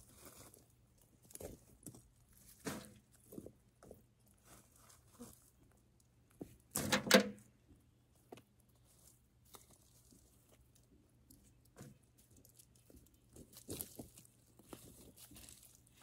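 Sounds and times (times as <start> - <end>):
chickens scratching in soil: 0.0 - 3.4, 4.3 - 5.6, 11.4 - 16.0.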